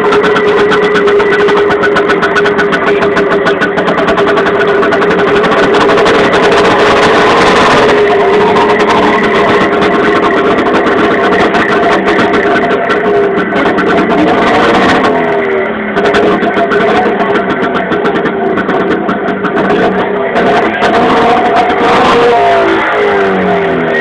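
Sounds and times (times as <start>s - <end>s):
small engine running: 0.0s - 24.0s.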